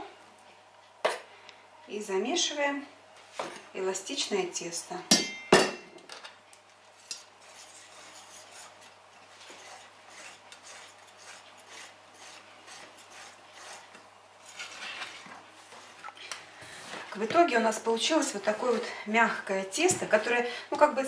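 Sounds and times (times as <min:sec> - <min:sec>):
whisk scratching in steel bowl: 0:07.1 - 0:15.2.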